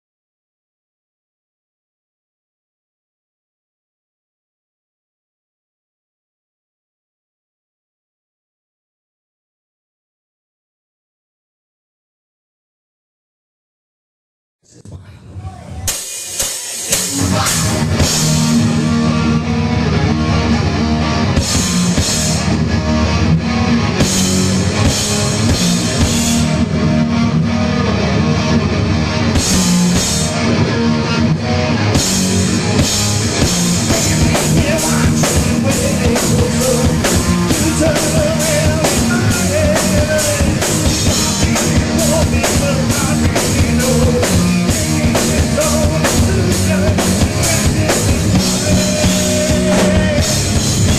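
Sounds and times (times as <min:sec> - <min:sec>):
heavy metal band playing: 0:15.8 - 0:50.9
pounding drums with cymbals: 0:15.9 - 0:18.6.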